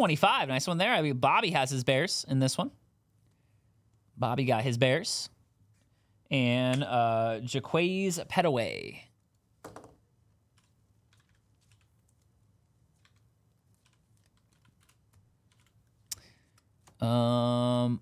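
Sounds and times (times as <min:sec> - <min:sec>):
faint keyboard typing: 0:09.3 - 0:17.2.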